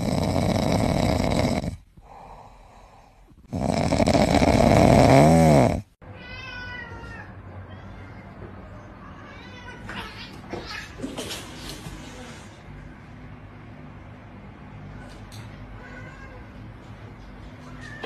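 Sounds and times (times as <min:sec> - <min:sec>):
cat meowing: 0:06.1 - 0:09.8.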